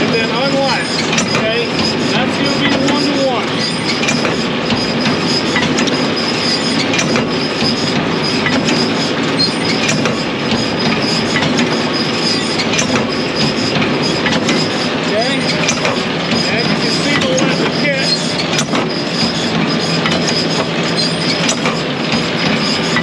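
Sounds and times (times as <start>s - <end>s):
baler clattering: 0.0s - 23.0s.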